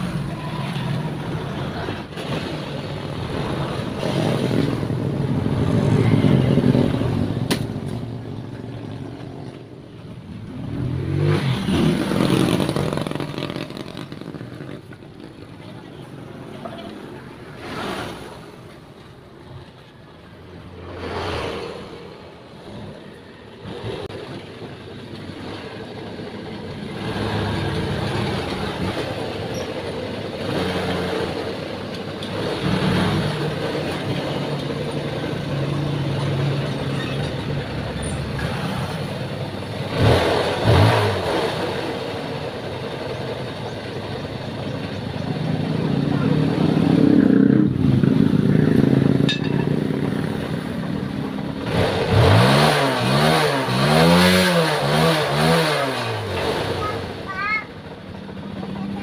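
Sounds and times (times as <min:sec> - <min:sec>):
vehicles passing: 0:00.0 - 0:59.0
motorcycle engine idling: 0:57.7 - 0:59.0.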